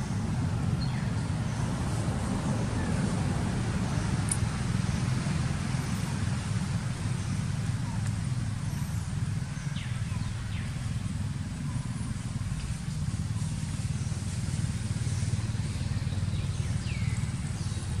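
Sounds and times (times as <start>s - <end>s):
engine idling: 0.0s - 18.0s.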